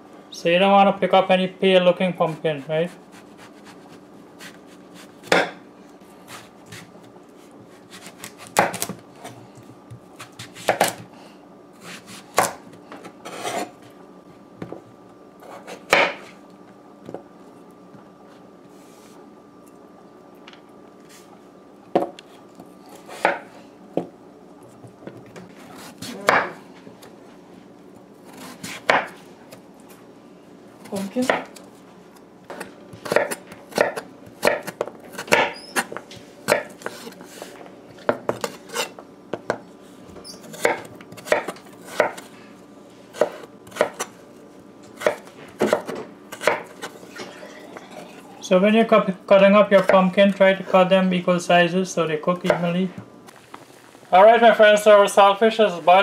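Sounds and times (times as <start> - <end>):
knife cutting pumpkin on cutting board: 2.2 - 5.5, 6.2 - 11.0, 11.8 - 13.8, 28.2 - 29.2, 32.5 - 39.0, 40.2 - 42.3, 43.1 - 44.2, 45.0 - 47.0.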